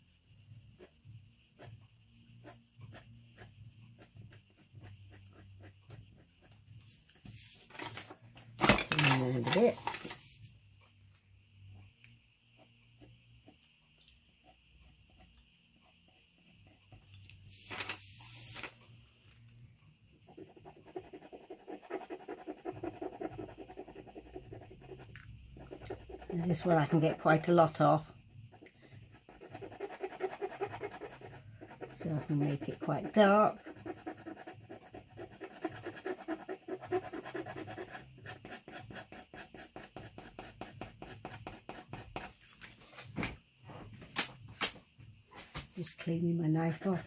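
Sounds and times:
paper rustling: 7.3s - 10.4s, 17.5s - 18.8s
metal tool scratching paint on paper: 29.2s - 42.3s, 46.1s - 47.0s.

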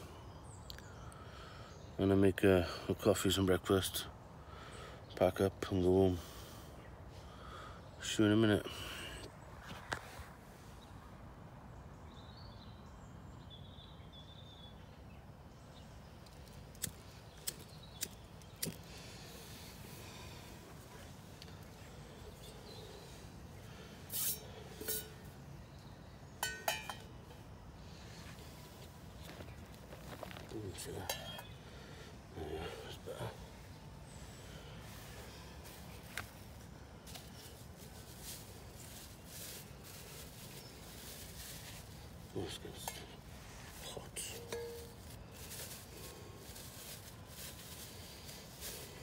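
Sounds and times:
frying pan clinking on stove: 26.4s - 27.1s
ringing metal clinks: 26.4s - 27.2s, 44.3s - 45.0s.

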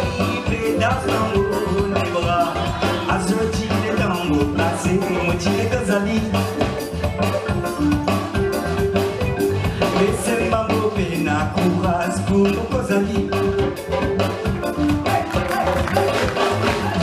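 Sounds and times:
person singing: 0.0s - 6.9s, 9.5s - 17.0s
drum kit: 0.0s - 17.0s
guitar: 0.0s - 17.0s
hand drum: 0.0s - 17.0s
keyboard: 0.0s - 17.0s.

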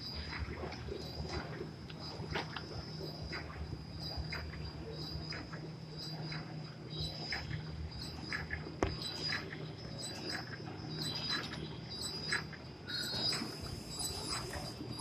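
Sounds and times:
high-pitched machine squeak: 6.0s - 15.0s.

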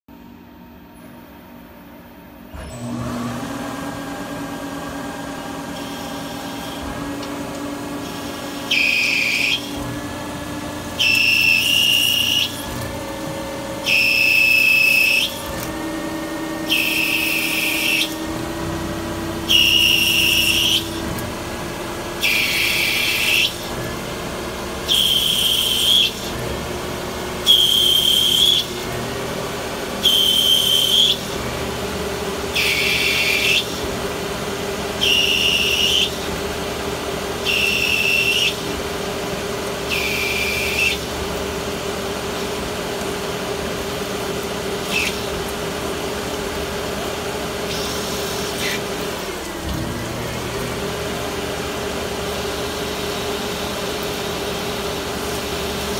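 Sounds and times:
lathe spindle hum: 2.5s - 55.9s
cutting tool whistling hiss: 5.7s - 6.9s, 8.0s - 9.9s, 11.0s - 12.7s, 13.8s - 15.6s, 16.6s - 18.3s, 19.4s - 21.1s, 22.2s - 23.7s, 24.9s - 26.4s, 27.4s - 28.8s, 30.0s - 31.4s, 32.5s - 33.8s, 35.0s - 36.3s, 37.4s - 38.7s, 39.9s - 41.1s, 44.8s - 45.4s, 47.6s - 48.9s.

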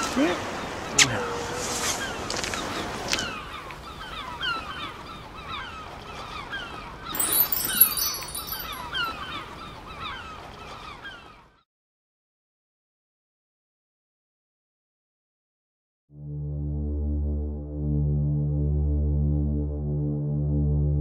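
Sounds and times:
handling rustle: 7.2s - 8.9s.

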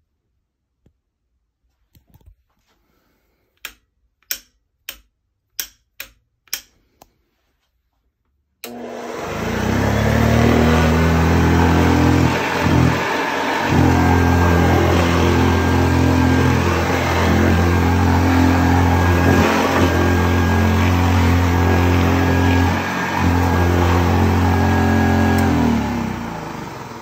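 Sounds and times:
vacuum cleaner motor humming: 8.6s - 27.0s.

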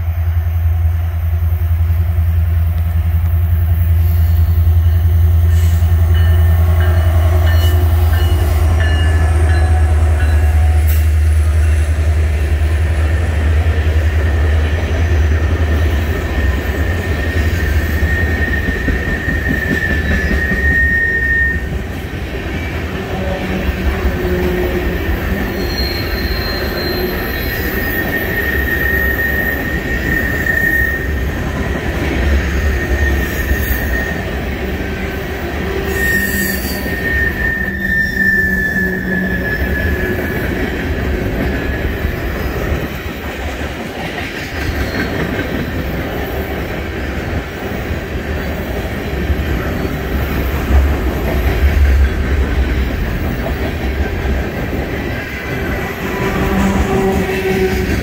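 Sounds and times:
train wheels rumbling on rails: 0.0s - 58.0s
thin wheel squeal: 35.9s - 40.2s.

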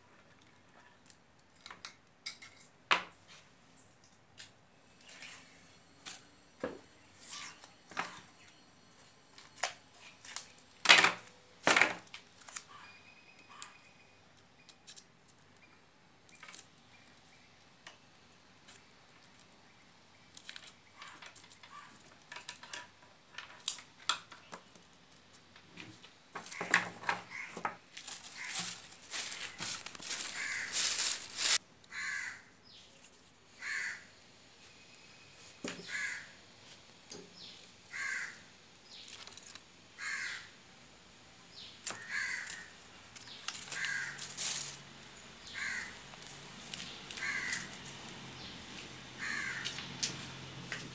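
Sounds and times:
plastic crinkling and rustling: 20.4s - 31.6s, 38.9s - 39.6s, 43.1s - 49.0s.

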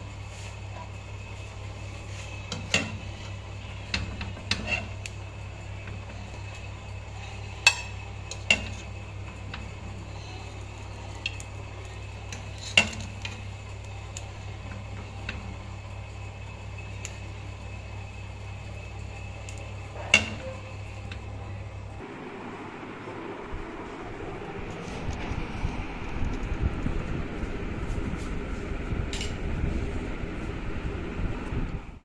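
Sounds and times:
low hum: 0.0s - 32.0s
spoon scraping a cooking pot: 2.0s - 5.2s.

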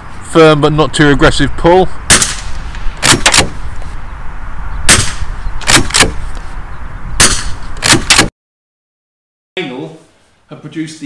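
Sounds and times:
suppressed rifle shots: 2.1s - 3.6s, 4.9s - 6.3s, 7.2s - 8.3s.

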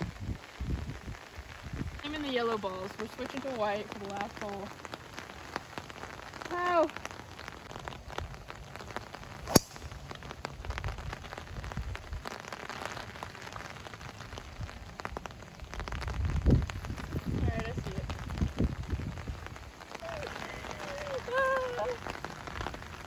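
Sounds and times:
heavy rain hissing: 0.0s - 23.0s
golf club striking ball: 9.5s - 9.8s.

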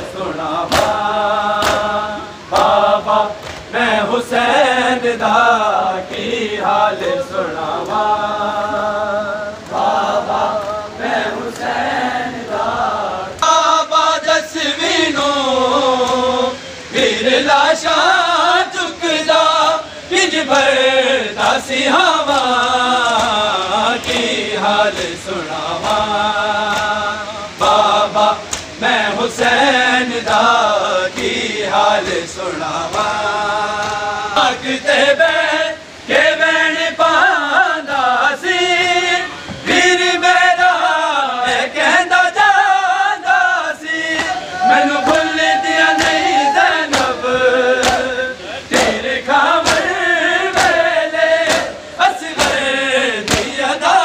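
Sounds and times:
men chanting a lament: 0.0s - 54.0s
hands slapping chests: 1.6s - 1.9s, 28.5s - 28.8s, 46.0s - 46.2s, 46.9s - 47.2s, 47.8s - 48.1s, 49.6s - 49.9s, 51.4s - 51.8s, 53.2s - 53.5s.

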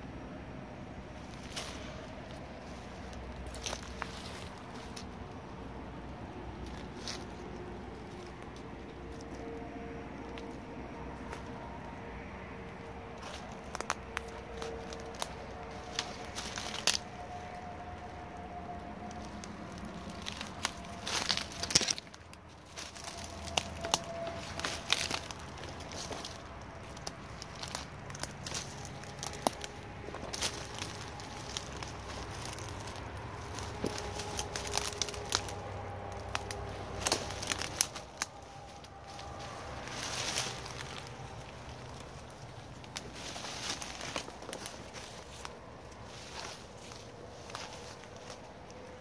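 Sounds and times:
leaves and twigs crackling underfoot: 0.2s - 49.0s.

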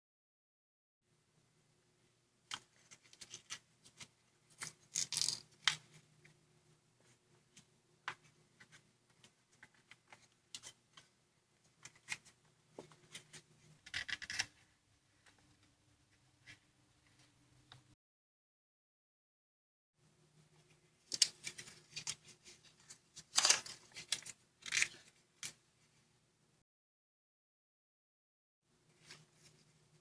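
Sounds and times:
paper crinkling and rustling: 21.0s - 25.5s.

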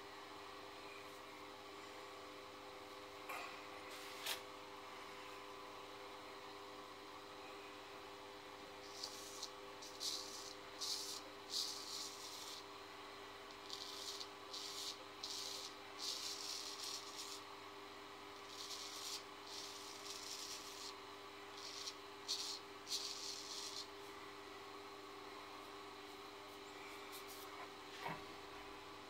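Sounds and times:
razor scraping stubble: 8.8s - 12.7s, 13.5s - 17.5s, 18.4s - 21.0s, 21.6s - 23.9s.

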